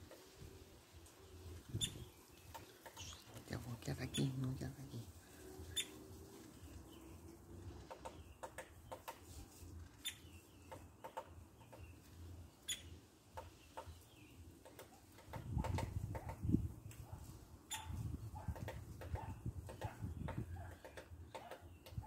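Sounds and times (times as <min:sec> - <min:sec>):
woodpecker tapping on wood: 0:01.8 - 0:03.4, 0:07.6 - 0:09.4, 0:10.0 - 0:12.0, 0:12.7 - 0:17.0, 0:18.4 - 0:22.0.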